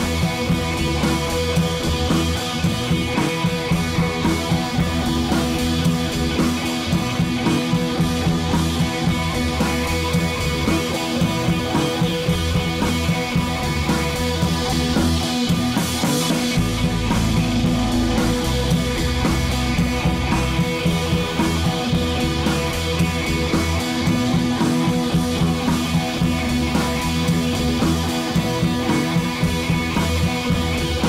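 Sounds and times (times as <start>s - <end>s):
rock music with electric guitar: 0.0s - 31.0s.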